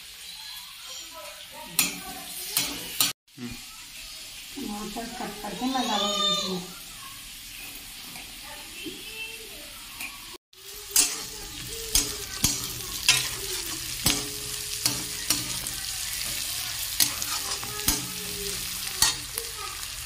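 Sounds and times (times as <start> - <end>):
onions sizzling in hot oil: 0.0 - 20.0
metal spatula scraping pan: 10.8 - 19.4.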